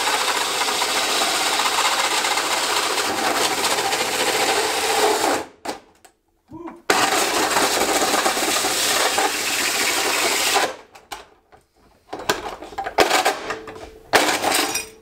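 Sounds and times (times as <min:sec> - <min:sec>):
power drill cutting sheet metal: 0:00.0 - 0:05.5, 0:06.9 - 0:10.8.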